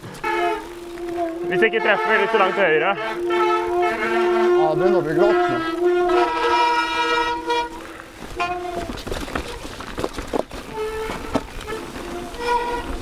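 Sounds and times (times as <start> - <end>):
bike clattering over rocks: 0.0 - 1.5, 6.2 - 13.0
bike disc brakes squealing: 10.6 - 13.0.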